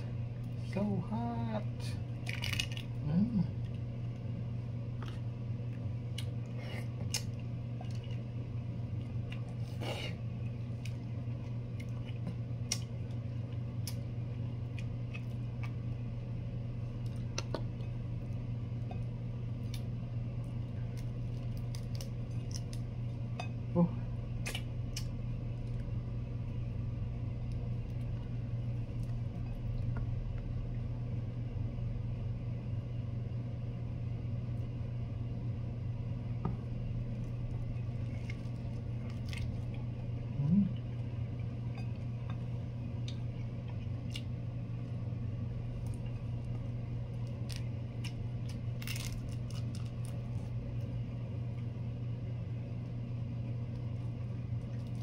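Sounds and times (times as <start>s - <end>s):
low hum: 0.0s - 55.0s
prawn shells cracking: 2.2s - 3.0s, 47.1s - 50.6s.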